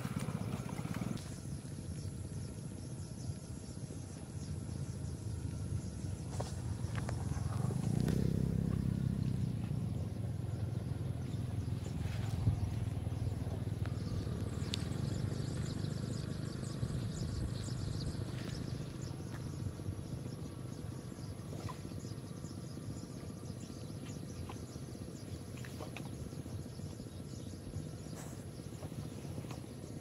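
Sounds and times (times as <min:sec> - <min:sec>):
high insect drone: 0:00.0 - 0:30.0
insects chirping: 0:00.0 - 0:30.0
low rumble: 0:00.2 - 0:27.0.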